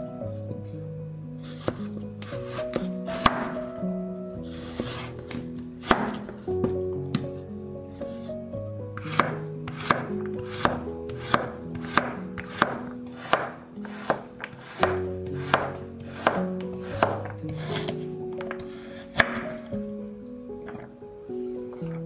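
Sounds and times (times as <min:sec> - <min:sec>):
background music: 0:00.0 - 0:22.0
knife chopping on wooden board: 0:01.6 - 0:03.6, 0:04.8 - 0:06.3, 0:09.1 - 0:19.5.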